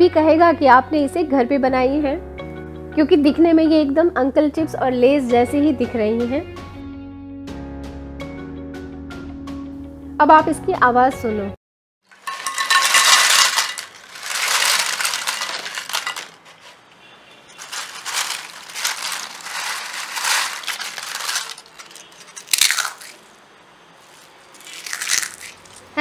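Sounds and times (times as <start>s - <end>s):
crisp chips pouring onto plate: 12.1s - 16.9s, 17.5s - 23.3s, 24.0s - 25.9s
chips crunching by hand: 12.2s - 16.8s, 17.6s - 23.3s, 24.1s - 25.9s.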